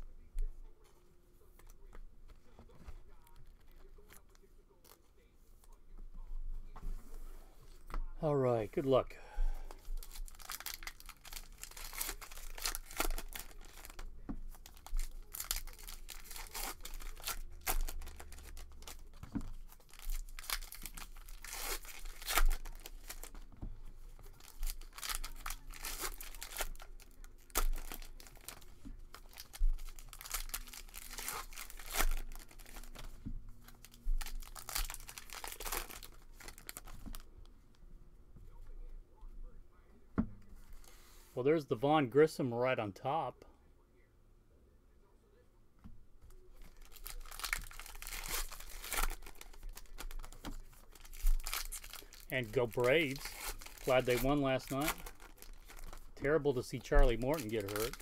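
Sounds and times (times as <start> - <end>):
card pack wrappers tearing: 9.8 - 23.5, 24.1 - 37.2, 46.6 - 58.0.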